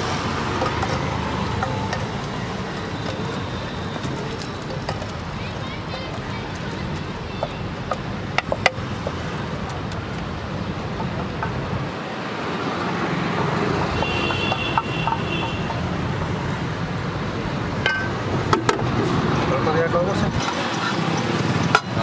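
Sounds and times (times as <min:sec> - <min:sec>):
roadside traffic noise: 0:00.0 - 0:22.0.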